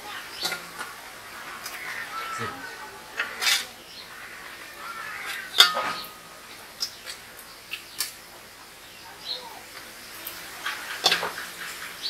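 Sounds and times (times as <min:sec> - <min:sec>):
metal spoon clinking on pot: 0:05.6 - 0:06.0.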